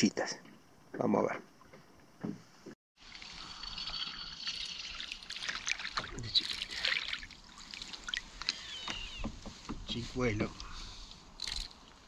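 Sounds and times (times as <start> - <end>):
water lapping and splashing: 3.0 - 9.9.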